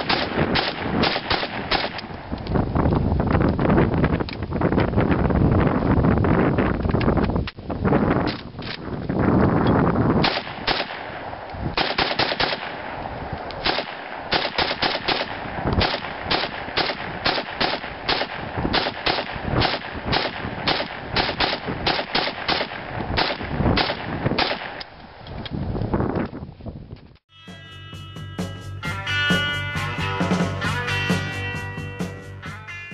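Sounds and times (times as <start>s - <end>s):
rifle firing rapid shots: 0.0s - 2.2s, 10.2s - 24.8s.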